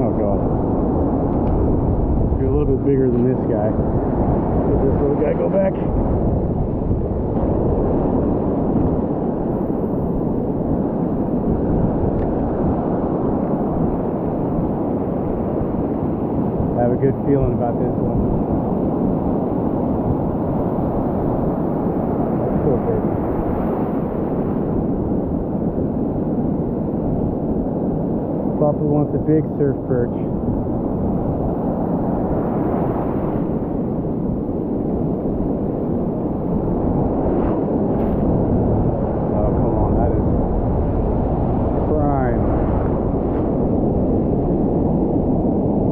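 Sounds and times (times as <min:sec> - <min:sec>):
ocean surf breaking: 0:00.0 - 0:45.9
wind buffeting microphone: 0:00.0 - 0:45.9.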